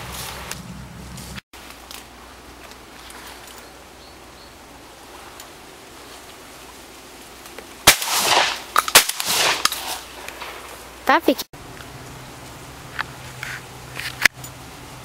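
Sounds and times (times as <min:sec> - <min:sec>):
shotgun blasts: 0:07.8 - 0:10.5.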